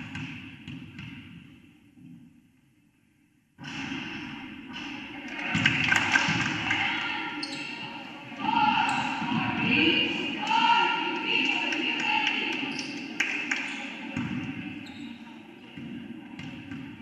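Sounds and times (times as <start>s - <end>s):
crowd voices and shouts: 4.6s - 16.1s.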